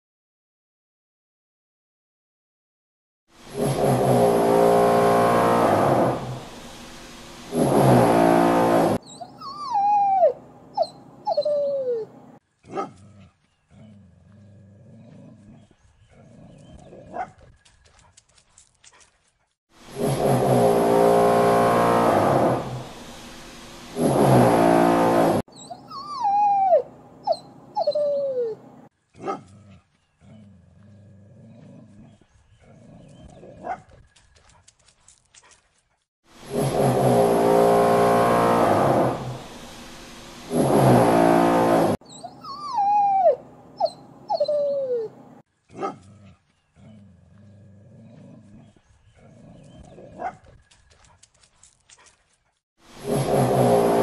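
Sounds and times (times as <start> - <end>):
steady engine-like drone: 3.5 - 9.0, 19.8 - 25.4, 36.4 - 42.0
dog whimpering and whining: 9.0 - 12.2, 25.5 - 28.6, 42.1 - 45.2.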